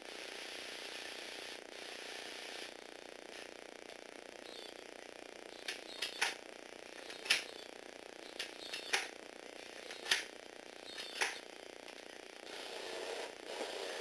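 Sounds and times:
toy motor gearing clicks: 5.6 - 6.4, 8.3 - 9.1, 10.9 - 11.4
toy car motor whir: 12.4 - 14.0.

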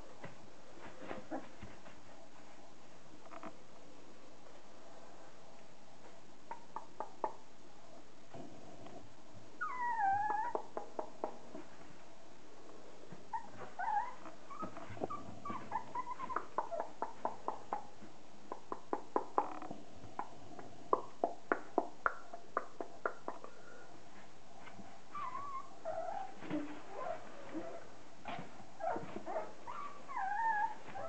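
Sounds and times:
puppies whimpering and yipping: 9.6 - 10.7, 13.3 - 17.1, 25.1 - 27.8, 28.8 - 31.0.

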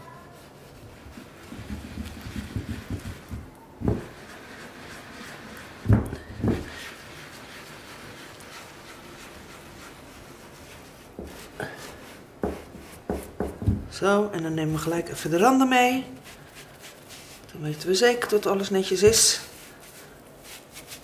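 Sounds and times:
sponge scrubbing tiles: 0.0 - 21.0
dull knocks: 12.4 - 13.9.

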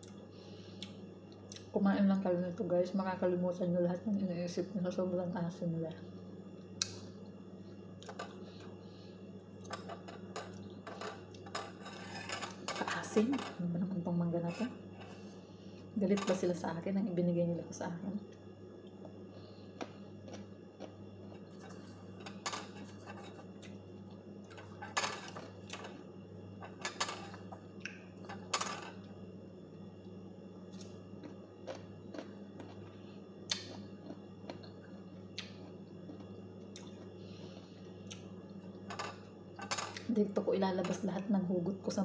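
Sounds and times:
faint low hum: 0.0 - 42.0
crunching bites and chewing: 18.9 - 21.4, 30.7 - 37.2.

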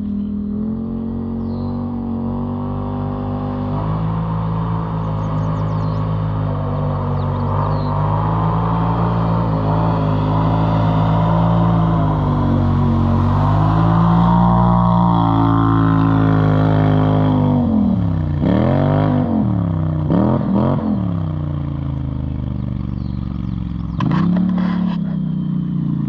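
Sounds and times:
atv engine revving: 0.0 - 26.0.

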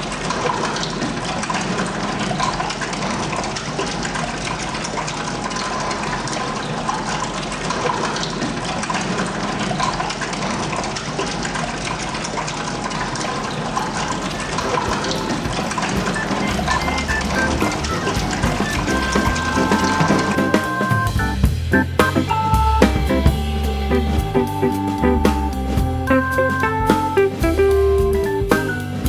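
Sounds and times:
water rushing and swirling: 0.0 - 21.1.

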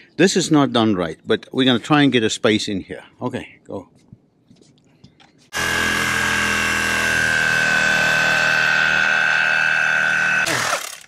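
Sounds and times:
reciprocating saw cutting wood: 5.5 - 11.0.

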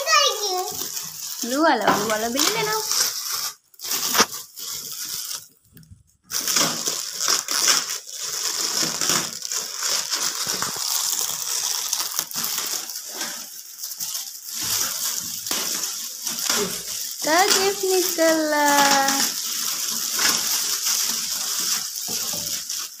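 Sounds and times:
metallic gift wrap tearing: 0.0 - 23.0.

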